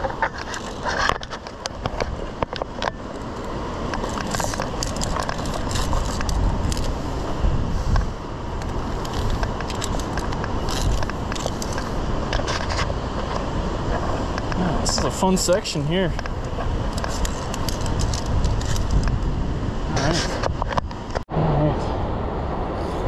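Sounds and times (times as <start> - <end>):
carabiners clinking on steel: 3.1 - 6.9, 8.6 - 11.9, 16.9 - 19.0
steady low rush: 21.3 - 23.0.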